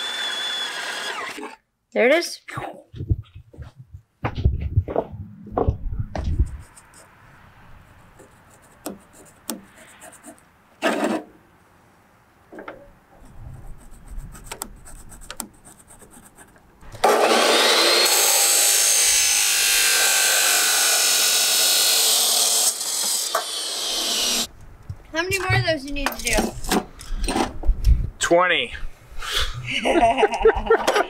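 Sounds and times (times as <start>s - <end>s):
power saw cutting steel: 0.0s - 1.6s, 16.9s - 24.5s.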